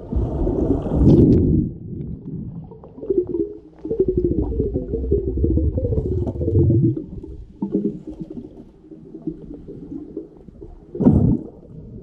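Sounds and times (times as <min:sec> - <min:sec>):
muffled underwater rumbling: 0:00.0 - 0:12.0.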